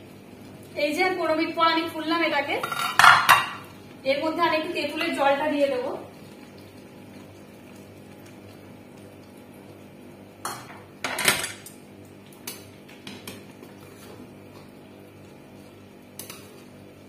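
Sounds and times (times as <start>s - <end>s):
faint background hum: 0.0s - 17.0s
metal utensils clinking on pan: 2.6s - 3.6s.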